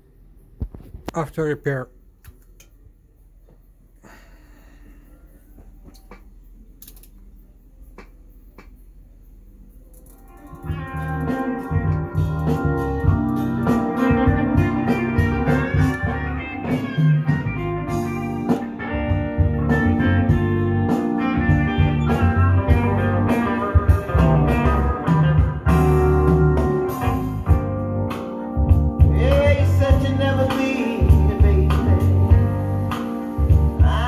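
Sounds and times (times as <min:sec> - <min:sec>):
guitar music with bass line: 0:10.2 - 0:34.0.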